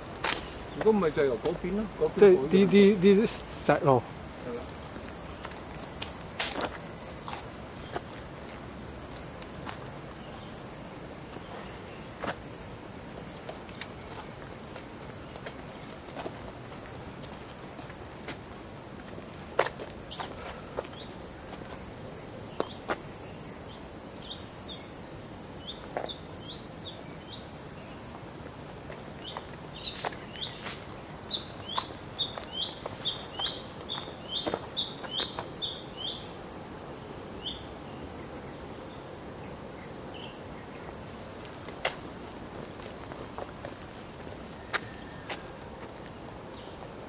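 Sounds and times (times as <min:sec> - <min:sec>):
footsteps on paved road: 0:00.0 - 0:23.2, 0:25.8 - 0:26.2, 0:28.1 - 0:35.9, 0:40.7 - 0:47.0
insects droning: 0:00.0 - 0:47.0
bird chirping: 0:31.3 - 0:36.3.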